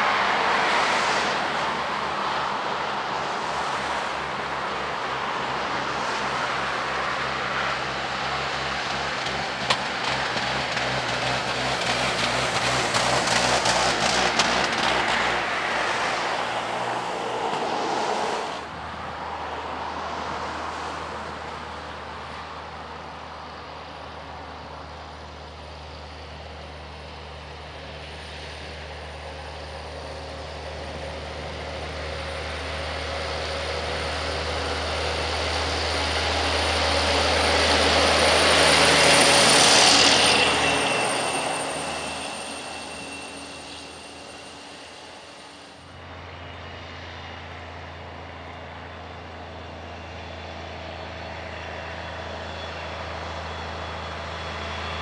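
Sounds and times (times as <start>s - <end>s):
car passing: 0.0s - 7.6s, 11.6s - 22.3s
truck diesel engine pulling uphill: 1.7s - 17.4s, 20.4s - 55.0s.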